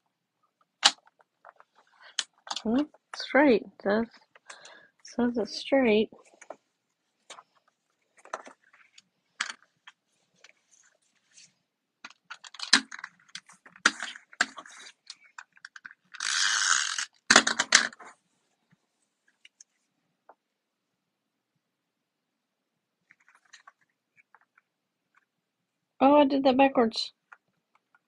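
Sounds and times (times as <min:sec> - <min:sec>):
paper rustling: 0:07.2 - 0:11.6, 0:12.3 - 0:16.1, 0:23.1 - 0:24.4.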